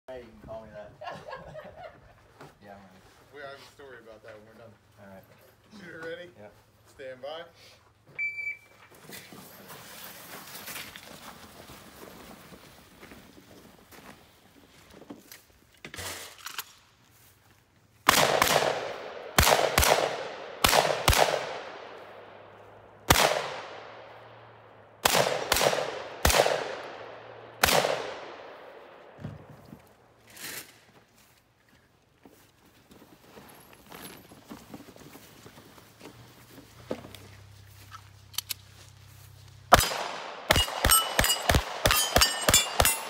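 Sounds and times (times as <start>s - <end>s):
echoing gunshots: 18.1s - 29.2s, 39.7s - 43.0s
soft knocks and shuffling: 29.2s - 39.7s.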